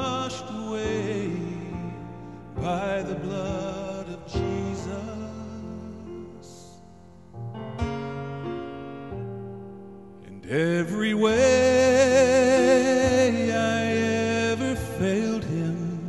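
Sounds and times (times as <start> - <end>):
man singing with vibrato: 0.0 - 6.8, 10.2 - 16.0
piano chords: 0.0 - 16.0.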